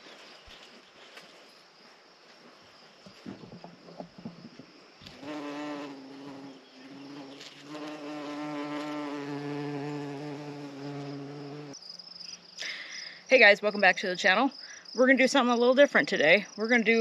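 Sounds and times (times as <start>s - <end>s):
insect buzzing: 3.2s - 13.3s.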